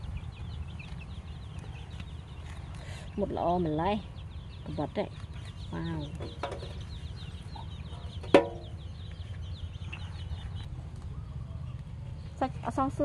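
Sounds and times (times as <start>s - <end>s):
chickens clucking: 4.6s - 12.3s.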